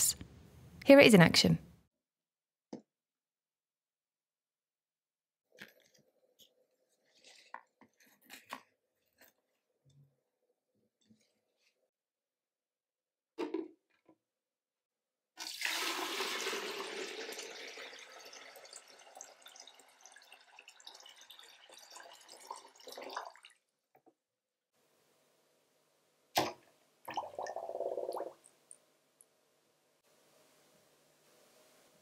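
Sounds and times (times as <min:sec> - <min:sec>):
water pouring into plastic jug: 0:15.4 - 0:23.6, 0:26.4 - 0:28.5.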